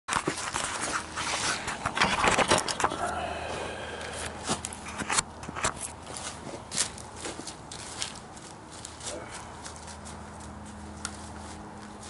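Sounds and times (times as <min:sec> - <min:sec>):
camera scraping and knocking on concrete: 0:00.1 - 0:03.0, 0:04.4 - 0:06.6.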